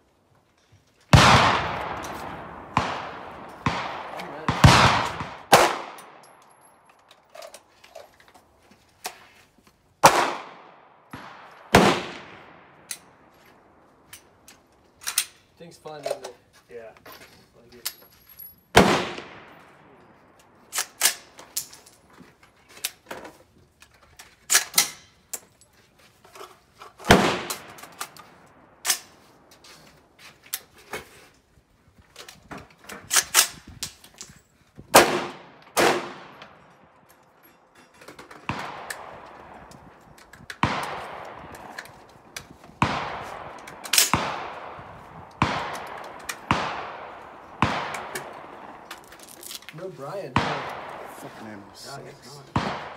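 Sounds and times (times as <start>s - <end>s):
rifle gunshots echoing: 1.1s - 6.7s, 10.0s - 13.8s, 18.7s - 21.4s, 27.1s - 29.2s, 34.9s - 37.0s, 38.4s - 40.0s, 40.6s - 49.2s, 50.0s - 52.9s.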